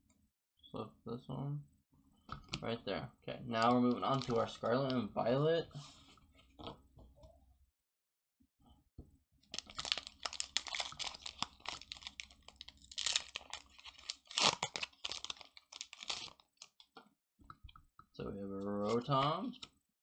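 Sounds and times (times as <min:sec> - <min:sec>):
foil wrapper crinkling: 0:04.0 - 0:04.6, 0:09.6 - 0:16.9
foil wrapper ripping: 0:09.6 - 0:16.7.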